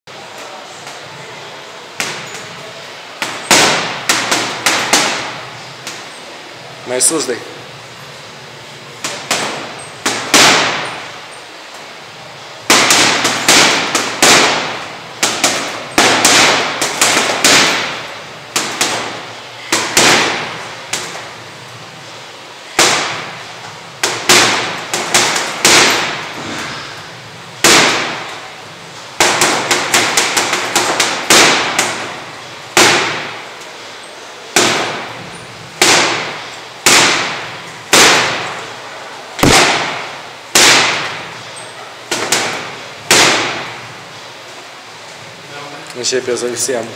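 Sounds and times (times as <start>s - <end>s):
punches hitting heavy bag: 3.2s - 6.0s, 9.0s - 11.0s, 12.6s - 21.3s, 22.7s - 26.9s, 27.6s - 28.4s, 29.2s - 33.4s, 34.5s - 38.6s, 39.4s - 41.4s, 42.1s - 43.8s.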